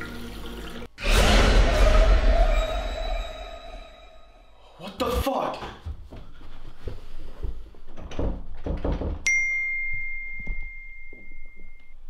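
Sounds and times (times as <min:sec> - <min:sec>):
bright bell-like ding: 0:09.3 - 0:11.9.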